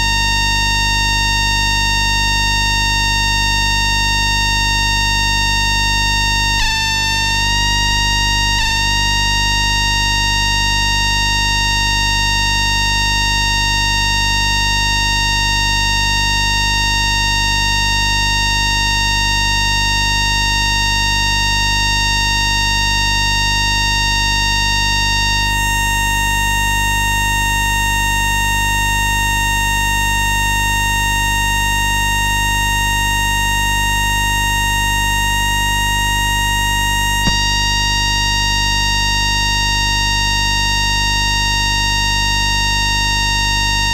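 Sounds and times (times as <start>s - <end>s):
electromagnetic whine of high tones: 0.0s - 43.9s
short click: 37.2s - 37.5s.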